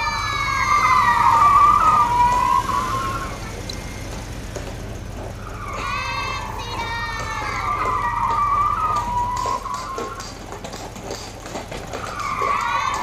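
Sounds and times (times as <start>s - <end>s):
child's drawn-out high voice: 5.7s - 10.1s.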